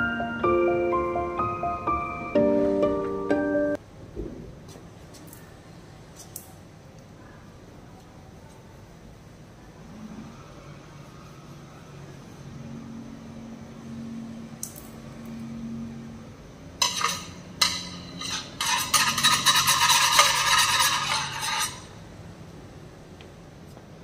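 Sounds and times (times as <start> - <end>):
rod scraping ceramic tiles: 16.8 - 21.9.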